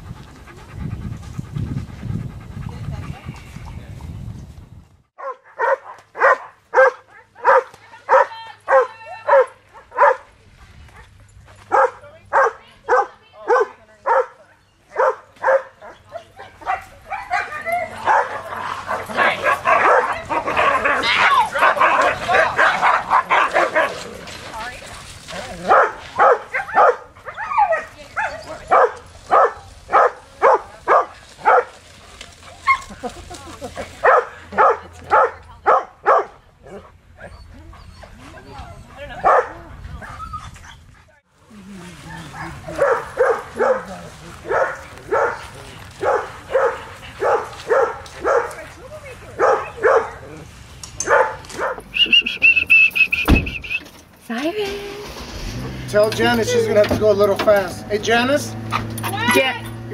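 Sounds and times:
dog barking: 5.2 - 10.3, 11.7 - 24.0, 25.7 - 31.8, 34.0 - 36.8, 39.2 - 39.6, 42.2 - 48.6, 49.4 - 50.2, 51.0 - 51.8.

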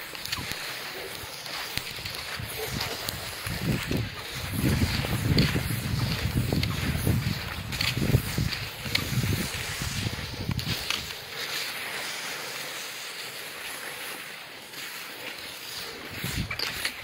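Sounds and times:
wind rumbling on microphone: 0.0 - 11.5, 16.0 - 17.0
rain falling on snow: 0.0 - 13.2.

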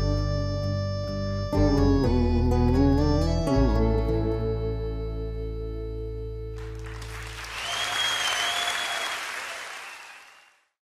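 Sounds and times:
audience applause: 6.6 - 10.7
high whistle: 7.5 - 10.6.

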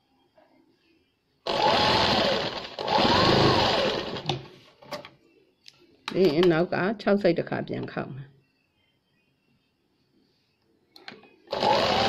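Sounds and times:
sewing machine stitching: 1.5 - 4.4, 11.5 - 12.0.

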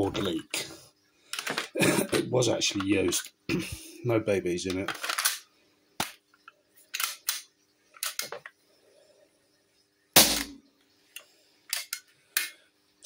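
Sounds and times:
gas pistol pop: 10.2 - 10.6.

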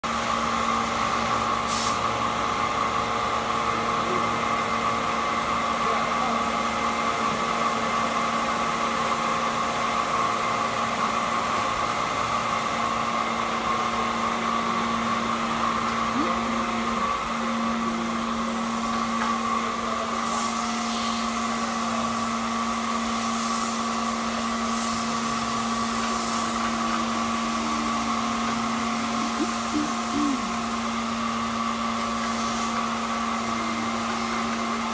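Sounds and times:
machinery hum: 0.1 - 34.9
brief hisses: 1.7 - 2.0.

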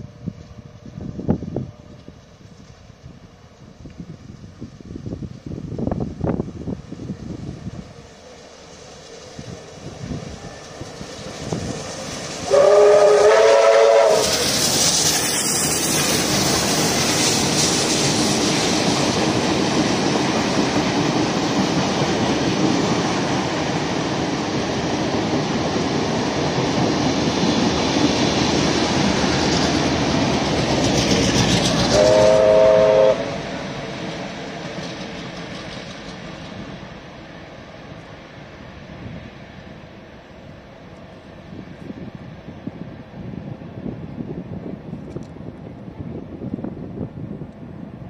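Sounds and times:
carriages rumbling and clacking on rails: 0.0 - 48.0
locomotive rushing past: 0.0 - 48.0
steam whistle chord blast: 12.5 - 14.6, 31.9 - 33.4.

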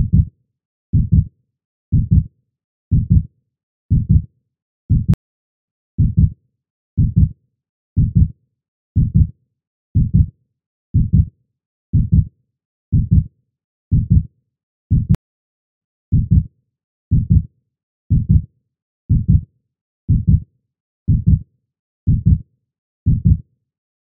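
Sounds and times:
heartbeat thumps: 0.0 - 0.3, 1.0 - 1.3, 1.9 - 2.3, 2.9 - 3.3, 3.9 - 4.2, 4.9 - 5.2, 6.0 - 6.3, 7.0 - 7.3, 8.0 - 8.3, 9.0 - 9.3, 10.0 - 10.3, 11.0 - 11.3, 12.0 - 12.3, 13.0 - 13.3, 13.9 - 14.2, 14.9 - 15.2, 16.1 - 16.4, 17.1 - 17.4, 19.1 - 19.4, 20.1 - 20.4, 21.1 - 21.4, 22.1 - 22.4, 23.1 - 23.4.

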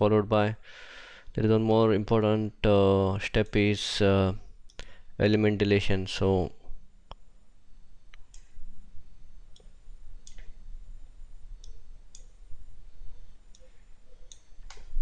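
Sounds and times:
faint low hum: 0.0 - 15.0
computer mouse clicking: 11.6 - 12.4, 13.5 - 15.0.

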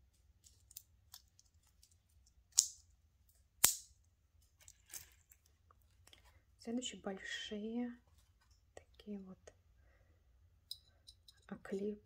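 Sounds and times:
sharp earring clicks: 2.5 - 2.8, 3.6 - 3.9.

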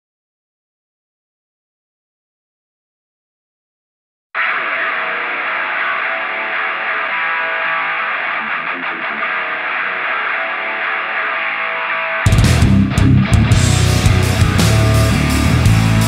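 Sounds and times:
distorted electric guitar strumming: 4.4 - 16.0
rock band with drums and bass: 4.4 - 16.0.

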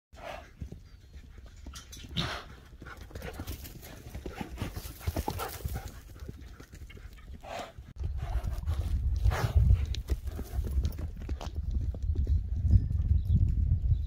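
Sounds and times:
horse breathing hard: 0.2 - 11.2
horse hooves thudding on dirt: 0.2 - 14.0.

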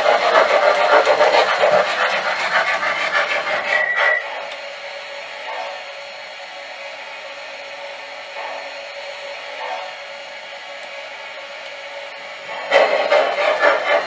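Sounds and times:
model train wheel noise: 0.0 - 7.5, 11.6 - 14.0
model steam train chuffing: 0.0 - 10.6, 12.4 - 14.0
short high squeal: 3.7 - 4.3.

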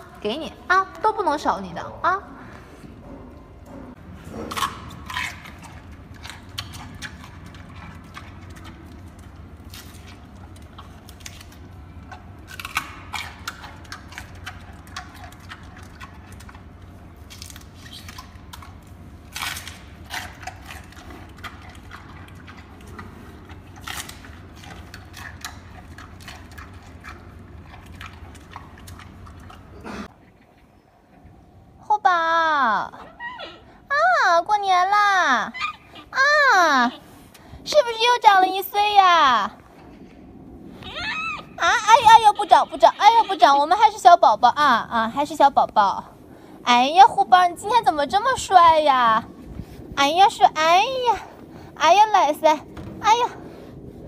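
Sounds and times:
steady low hum: 0.0 - 54.0
panda chewing and crunching: 4.0 - 30.0.

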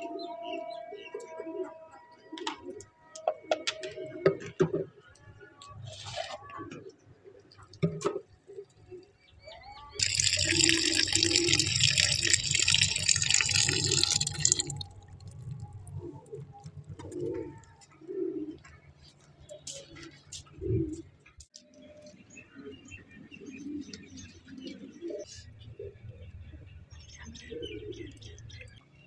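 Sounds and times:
tap water gushing into plastic bowl: 10.0 - 14.9
doves cooing: 10.0 - 18.8, 19.6 - 21.1, 22.6 - 26.3.

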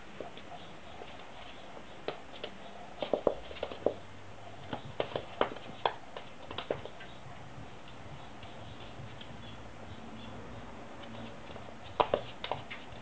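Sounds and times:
puppy claws clicking on wooden floor: 4.6 - 7.2, 11.0 - 13.0.

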